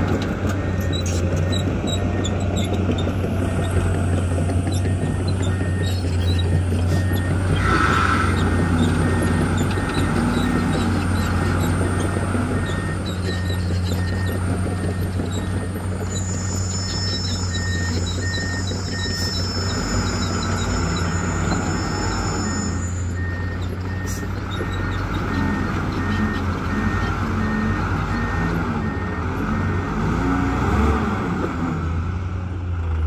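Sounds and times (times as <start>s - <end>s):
diesel truck engine running: 0.0s - 33.0s
reversing beeper: 4.8s - 30.8s.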